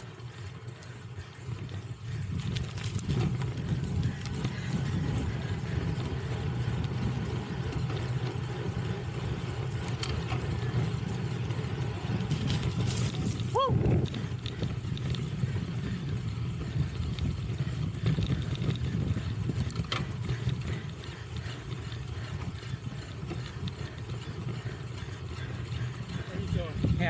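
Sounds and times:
bike clicks and rattles: 0.0s - 27.0s
tyres rolling over rough ground: 0.0s - 27.0s
wind on microphone: 2.1s - 8.0s, 11.7s - 21.1s.

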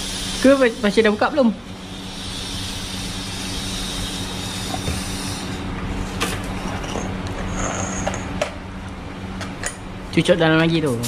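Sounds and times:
steady low hum: 0.0s - 11.0s
air hissing from tyre valve: 1.8s - 5.6s.

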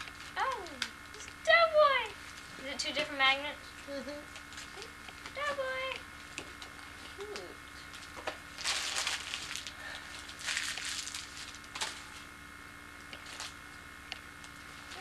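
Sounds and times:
faint steady hum: 0.0s - 15.0s
gift packaging crinkling: 7.4s - 12.2s.

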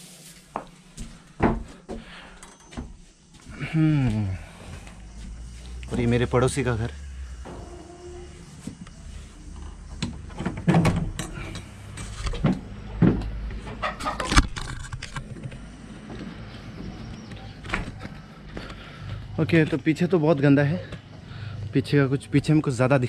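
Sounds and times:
low steady rumble: 4.9s - 10.3s.

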